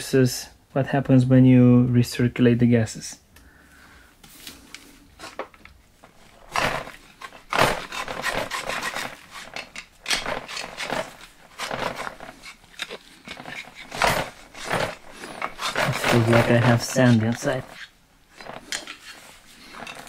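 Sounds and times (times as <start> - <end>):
screwdriver scraping soot from metal: 6.3 - 20.0.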